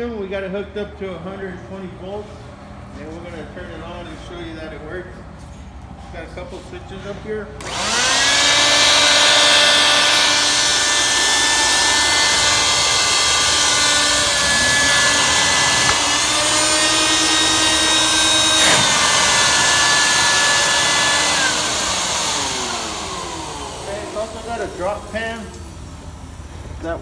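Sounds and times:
vacuum motors whining: 7.6s - 27.0s.

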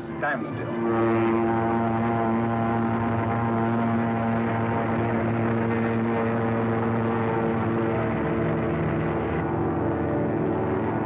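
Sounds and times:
propeller plane engines droning: 0.0s - 11.0s.

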